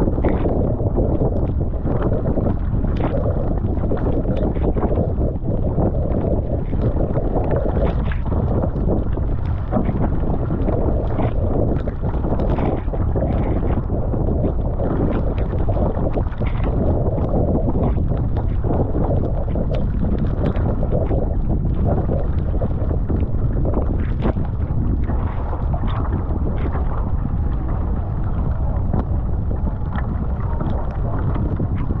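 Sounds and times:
paddle splashes: 0:00.0 - 0:05.5, 0:06.4 - 0:32.0
water rushing along hull: 0:00.0 - 0:32.0
wind buffeting microphone: 0:00.0 - 0:32.0.

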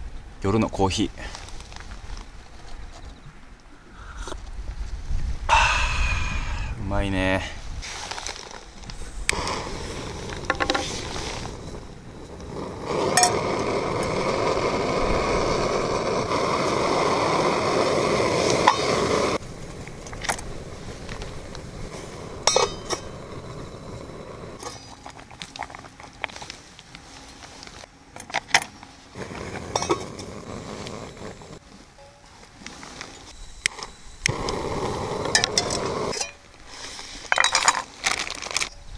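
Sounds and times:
gas stove burner hissing: 0:08.9 - 0:24.6, 0:29.2 - 0:31.6, 0:33.4 - 0:37.2.

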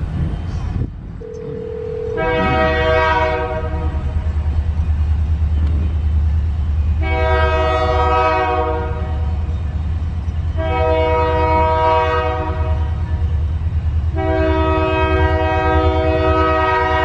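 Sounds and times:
low rumble: 0:00.0 - 0:07.1
train horn blasts: 0:01.2 - 0:04.3, 0:07.0 - 0:09.4, 0:10.5 - 0:13.2, 0:14.1 - 0:17.0.

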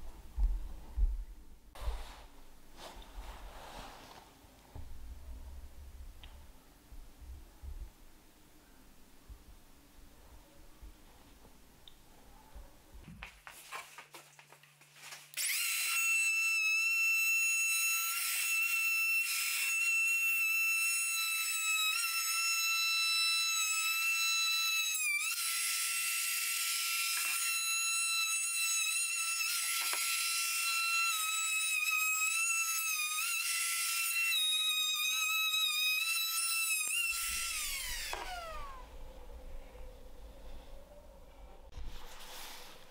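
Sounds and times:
router whining while cutting wood: 0:15.4 - 0:38.8.

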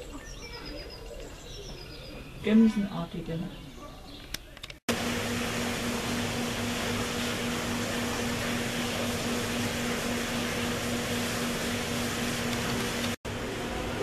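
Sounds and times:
ventilation fan humming: 0:04.9 - 0:14.0.

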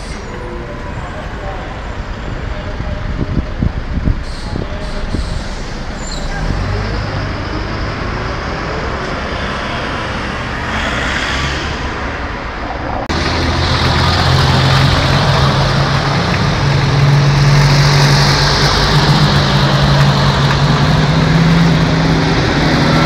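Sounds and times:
city road traffic: 0:00.0 - 0:23.0
trucks engine hum: 0:00.0 - 0:23.0
car passing close: 0:05.1 - 0:23.0.

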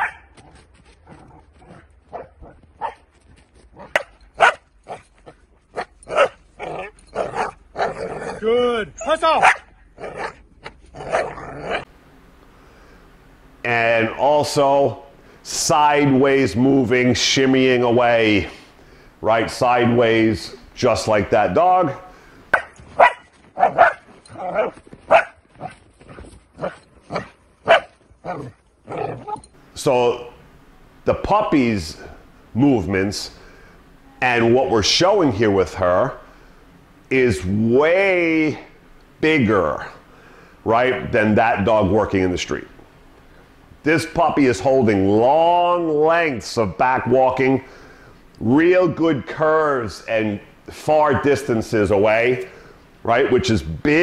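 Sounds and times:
puppy barking: 0:00.0 - 0:00.3, 0:01.6 - 0:03.0, 0:03.8 - 0:05.0, 0:05.7 - 0:07.9, 0:09.4 - 0:10.4, 0:22.5 - 0:25.7, 0:26.6 - 0:29.4.

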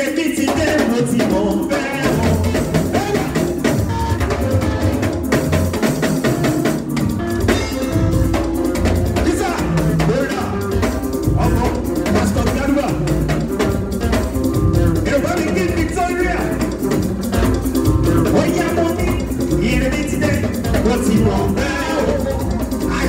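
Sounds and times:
man singing: 0:00.0 - 0:04.0, 0:09.1 - 0:13.4, 0:15.0 - 0:16.9, 0:18.1 - 0:23.0
drum kit beat: 0:00.0 - 0:23.0
guitar: 0:00.0 - 0:23.0
keyboard: 0:00.0 - 0:23.0.

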